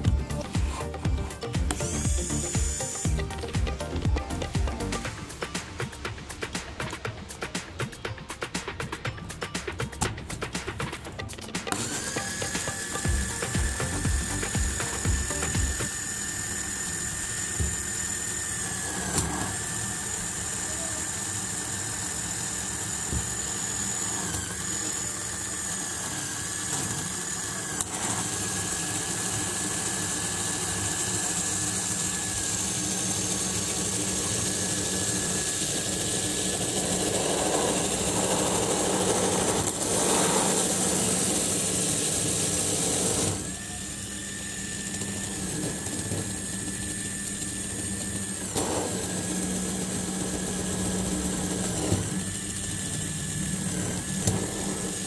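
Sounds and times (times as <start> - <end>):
small electric motor whining: 0.0 - 55.0.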